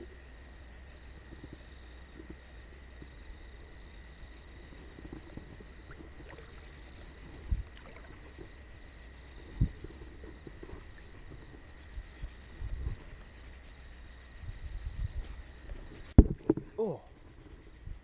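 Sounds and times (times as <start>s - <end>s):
river rumble: 2.0s - 12.5s
dull low thumps: 4.6s - 8.6s.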